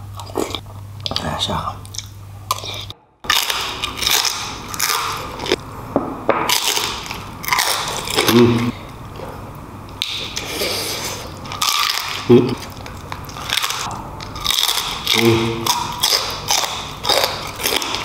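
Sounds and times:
chewing and crunching: 0.1s - 5.6s, 6.5s - 9.4s, 10.0s - 18.0s
person humming: 8.2s - 8.8s, 12.3s - 12.6s, 15.2s - 15.6s.

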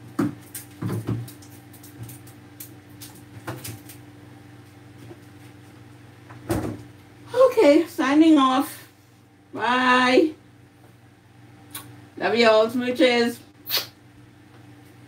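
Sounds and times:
groceries knocking and clattering: 0.0s - 4.0s
low steady hum: 0.0s - 15.0s.

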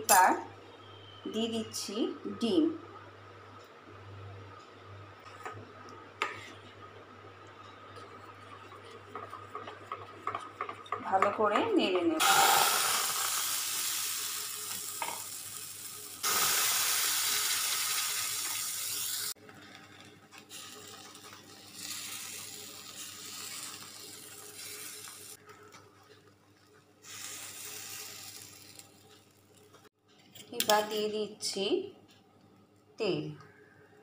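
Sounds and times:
batter sizzling in a frying pan: 12.2s - 25.4s, 27.0s - 29.8s.

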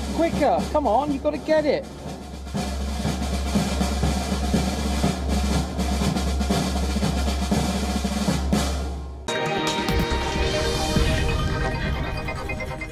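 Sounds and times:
snare and bass drum beat: 0.0s - 9.3s.

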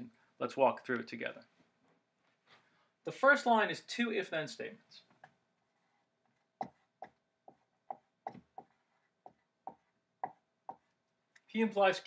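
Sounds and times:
marker squeaking on whiteboard: 5.2s - 11.0s.

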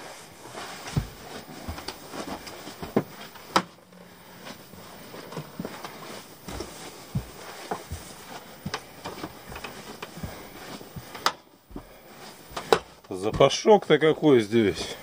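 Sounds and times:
footsteps on cabin floor: 0.0s - 15.0s.

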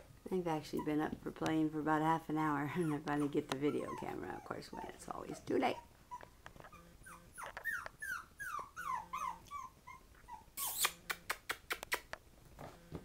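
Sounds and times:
puppy whimpering: 0.6s - 1.1s, 2.5s - 11.0s.

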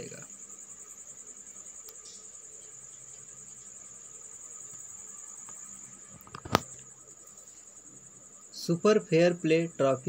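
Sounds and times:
cricket trilling: 0.0s - 10.0s.

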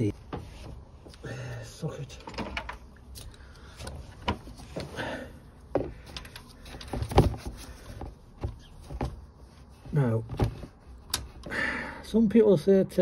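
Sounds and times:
rustling: 2.7s - 11.4s.

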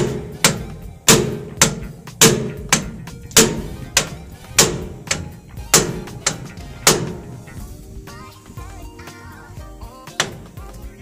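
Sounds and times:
hammer striking steel: 0.0s - 7.8s.

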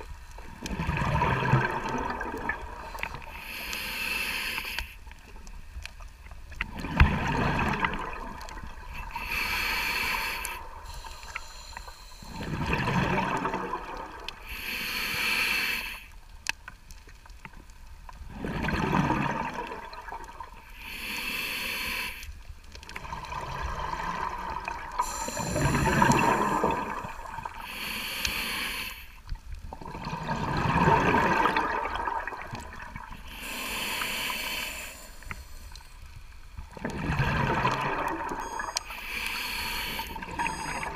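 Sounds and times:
scuba regulator exhale bubbling: 0.5s - 4.8s, 6.6s - 16.0s, 18.3s - 22.2s, 23.0s - 29.0s, 29.7s - 35.9s, 36.7s - 40.9s
scuba regulator inhale hiss: 2.9s - 5.0s, 9.0s - 12.5s, 14.4s - 16.2s, 20.7s - 22.4s, 24.9s - 29.2s, 33.2s - 36.2s, 38.4s - 40.9s.

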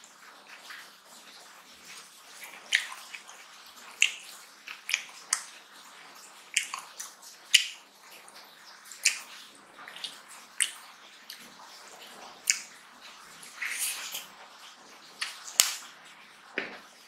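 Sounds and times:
fingers squishing rice: 1.8s - 11.6s, 12.3s - 14.4s
wet lip smacks while chewing: 2.3s - 5.6s, 6.5s - 7.8s, 8.9s - 11.5s, 12.4s - 12.8s, 15.2s - 15.9s.

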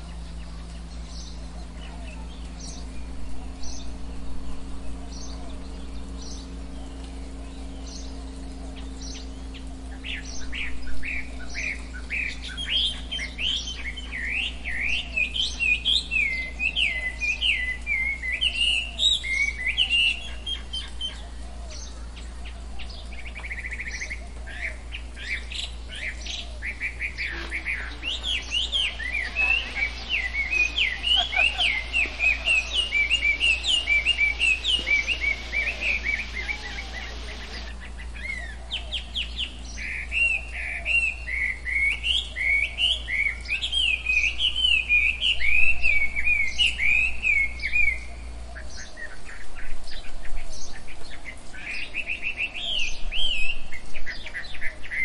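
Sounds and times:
birds chirping: 0.0s - 55.0s
steady low hum: 0.0s - 55.0s
soft hiss: 24.2s - 38.2s.

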